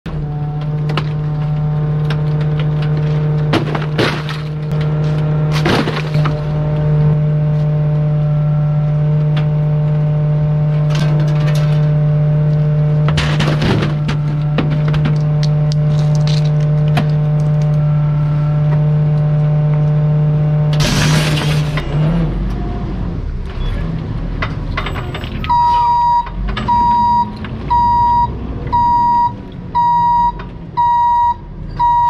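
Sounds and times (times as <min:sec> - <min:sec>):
reverse alarm beeping: 0:25.5 - 0:32.0.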